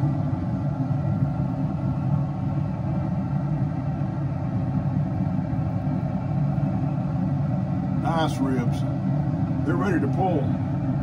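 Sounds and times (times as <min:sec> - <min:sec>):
pellet grill fan humming: 0:00.0 - 0:11.0.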